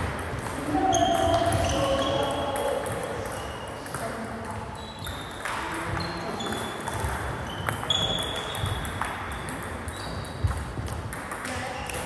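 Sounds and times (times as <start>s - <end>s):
high-pitched squeaks: 7.4s - 8.8s.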